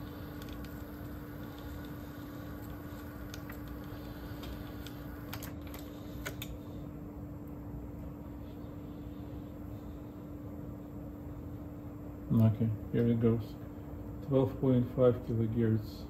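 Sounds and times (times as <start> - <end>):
cassette tape winding hiss: 0.0 - 6.6.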